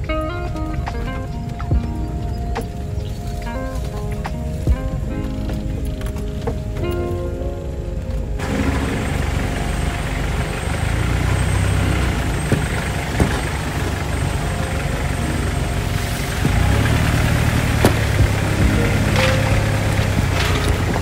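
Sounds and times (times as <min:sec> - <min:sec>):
constant hiss: 0:00.0 - 0:21.0
vehicle engine rumbling: 0:00.0 - 0:21.0.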